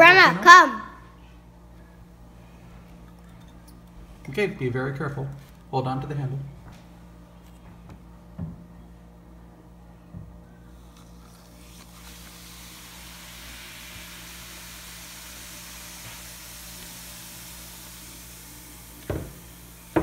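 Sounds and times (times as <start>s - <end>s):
fizzing hiss of foam: 11.2s - 20.0s.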